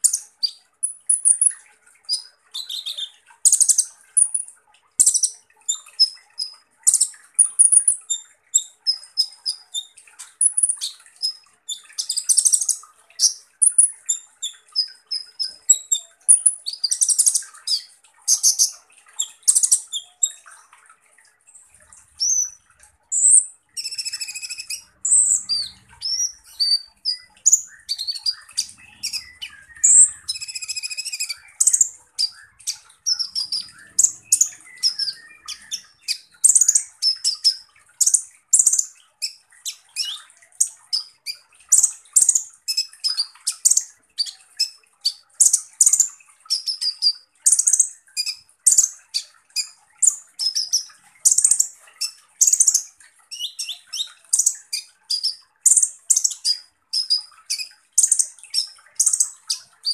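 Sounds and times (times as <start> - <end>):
buzzy bird trills: 21.5 - 40.2
bird singing sharp high notes: 23.2 - 36.2.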